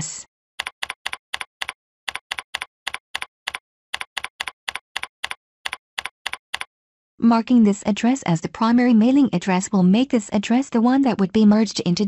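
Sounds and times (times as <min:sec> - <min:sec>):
keyboard typing: 0:00.6 - 0:06.7.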